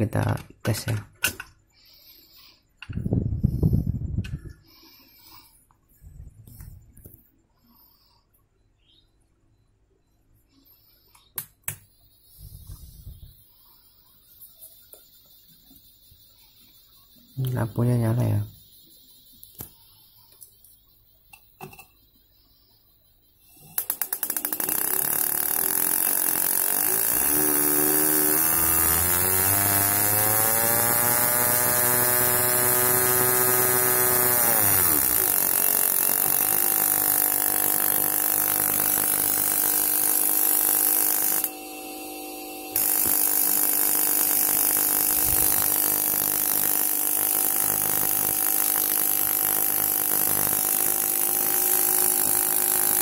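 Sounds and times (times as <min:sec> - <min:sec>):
loud electric hum with hiss: 0:24.5 - 0:53.0.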